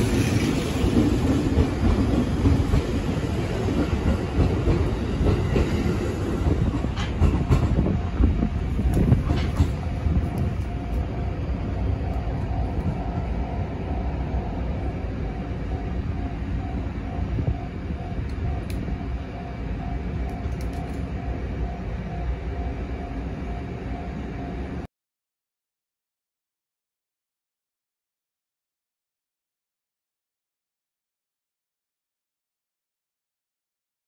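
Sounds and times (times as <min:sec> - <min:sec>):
train wheels clattering over rail joints: 0:00.0 - 0:10.6
train rumble: 0:00.0 - 0:24.9
faint hum: 0:09.8 - 0:24.9.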